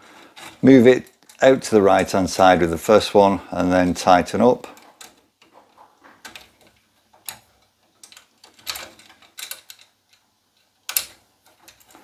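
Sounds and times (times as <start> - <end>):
small clicks and scrapes of bolts: 0.1 - 1.5, 4.7 - 12.0.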